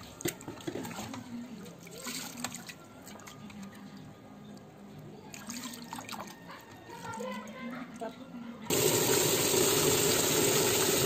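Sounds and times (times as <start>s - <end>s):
water sloshing and splashing: 0.0s - 3.8s, 5.3s - 7.6s.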